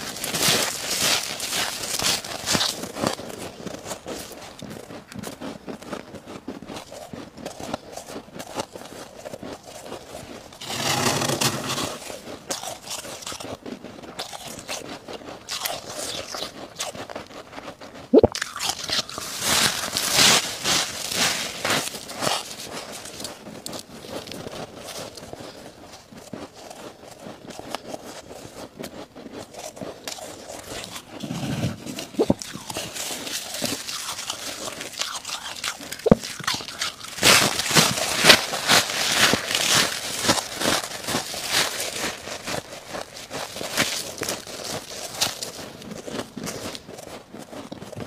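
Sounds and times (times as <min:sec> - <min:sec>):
ice crunching as it is chewed: 0:00.0 - 0:48.0
frost rustling as scooped by hand: 0:10.6 - 0:12.1, 0:19.2 - 0:23.0, 0:37.1 - 0:45.3.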